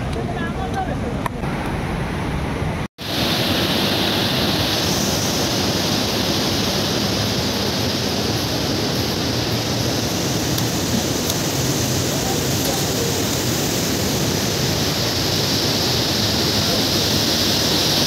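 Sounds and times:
river rushing over boulders: 0.0 - 18.0.

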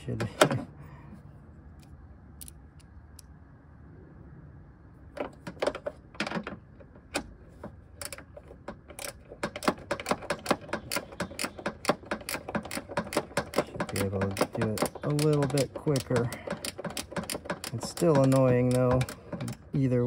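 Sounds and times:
ratchet wrench clicking: 8.9 - 19.6.

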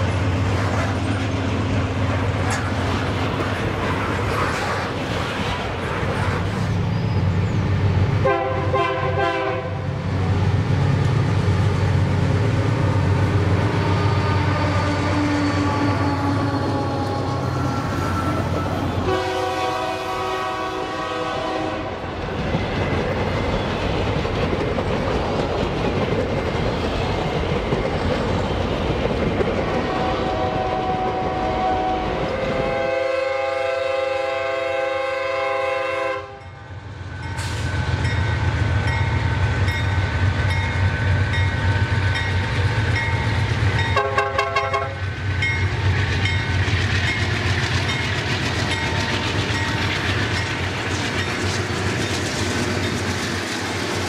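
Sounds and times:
locomotive engine humming: 0.0 - 54.0
train horn: 8.2 - 10.0, 13.6 - 18.2, 19.0 - 22.1, 29.8 - 36.6, 43.9 - 45.0.

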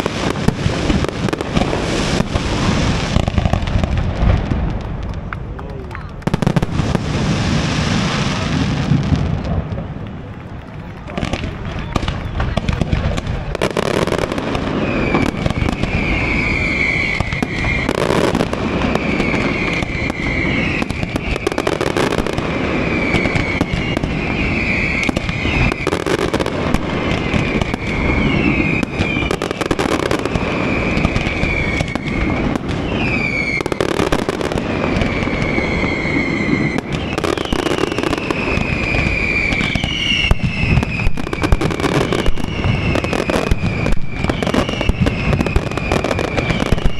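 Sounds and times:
fireworks bangs and crackles: 0.0 - 46.9
fireworks whistles sliding in pitch: 13.6 - 46.9.

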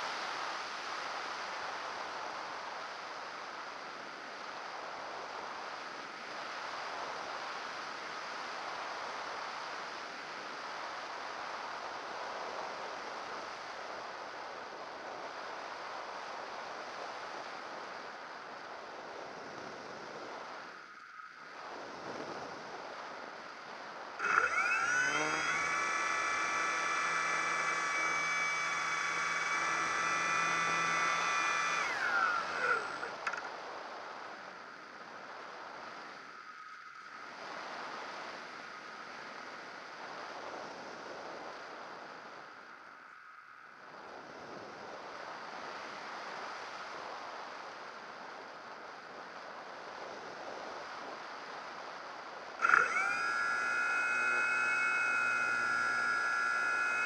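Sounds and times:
electric motor whine: 24.2 - 33.5, 52.6 - 57.0.

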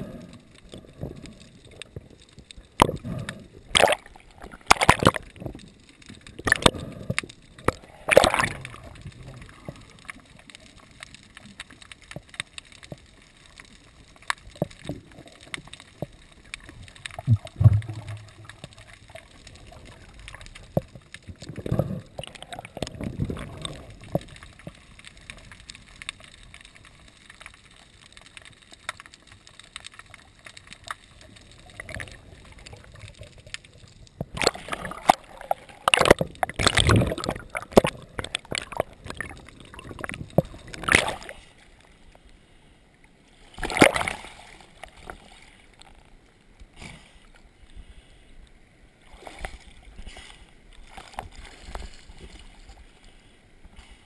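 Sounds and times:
water sloshing and gurgling: 0.0 - 54.0
sharp splashes or knocks: 3.7 - 5.2, 7.7 - 8.8, 43.6 - 44.2.

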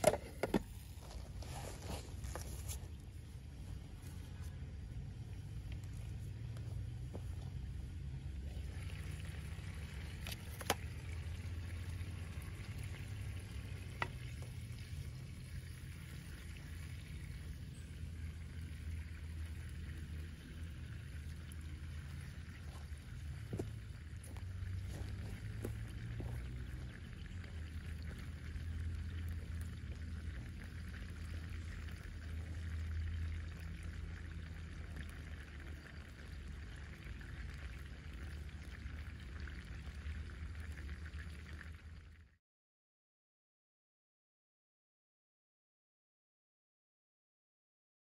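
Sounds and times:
low forest rumble: 0.0 - 42.1
soft hiss of rain: 0.0 - 42.2
faint ticks of raindrops: 5.6 - 7.8, 20.7 - 41.9.

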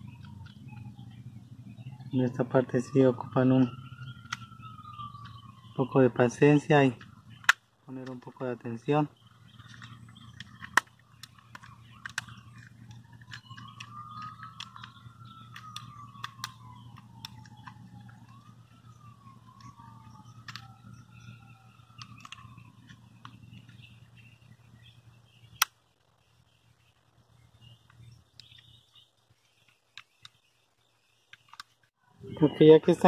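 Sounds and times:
faint siren wailing: 0.0 - 29.2
plastic parts clicking and snapping: 4.1 - 5.6, 6.2 - 24.0, 25.5 - 25.9, 31.2 - 31.9.

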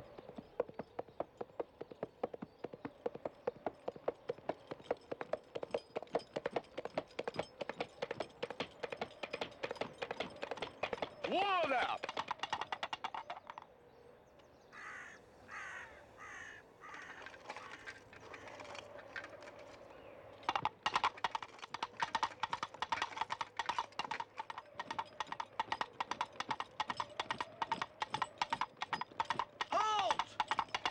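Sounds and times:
galloping hoofbeats: 0.0 - 13.8, 16.4 - 30.9
harsh caw-like calls: 14.7 - 18.7.

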